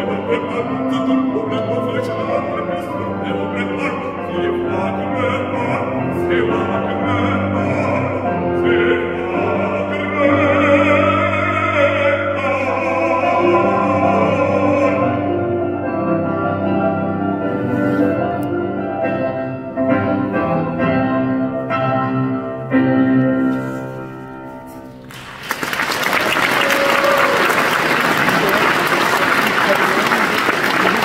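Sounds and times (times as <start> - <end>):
operatic bass voice singing: 0.0 - 15.6
piano: 0.0 - 31.0
audience applause: 25.1 - 31.0.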